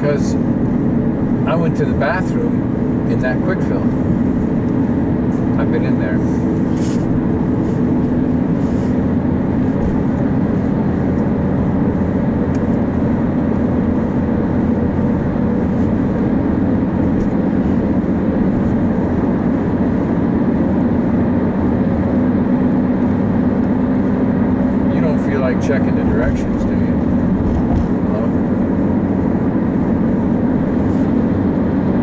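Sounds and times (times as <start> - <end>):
car road and engine drone: 0.0 - 32.0.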